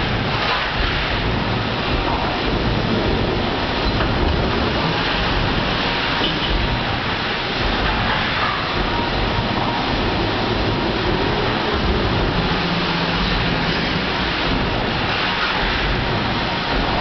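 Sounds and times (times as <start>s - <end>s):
hiss: 0.0s - 17.0s
low rumble: 6.5s - 17.0s.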